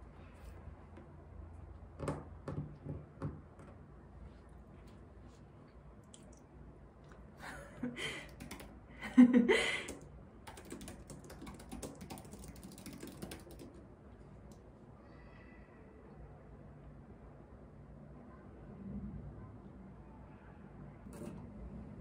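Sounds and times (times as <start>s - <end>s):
fast typing on keyboard: 8.2s - 8.8s, 9.9s - 13.8s.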